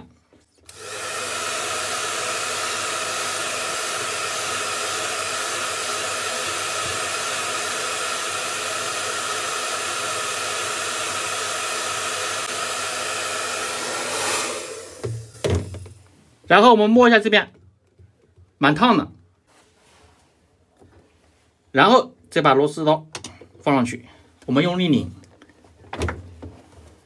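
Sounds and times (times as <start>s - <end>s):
hair dryer running: 0.7s - 16.0s.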